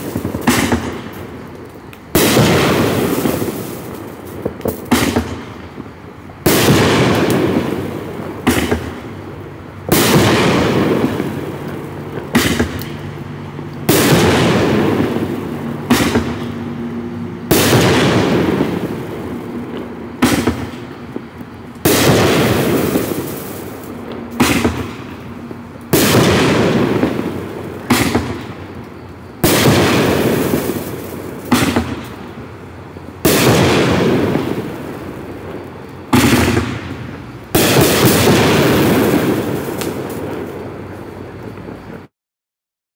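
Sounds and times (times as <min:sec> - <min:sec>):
firework launch thumps: 0:00.0 - 0:01.3, 0:02.0 - 0:05.9, 0:06.5 - 0:09.1, 0:09.9 - 0:13.2, 0:13.8 - 0:16.6, 0:17.5 - 0:28.8, 0:29.4 - 0:32.3, 0:35.4 - 0:40.5
crackling hiss: 0:00.0 - 0:42.1
firework shells bursting: 0:00.0 - 0:42.1.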